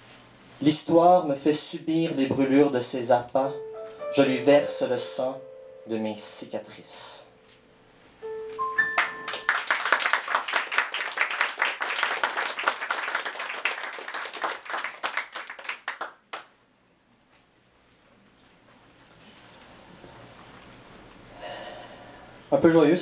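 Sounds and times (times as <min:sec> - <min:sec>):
audience clapping: 0:08.8 - 0:16.6.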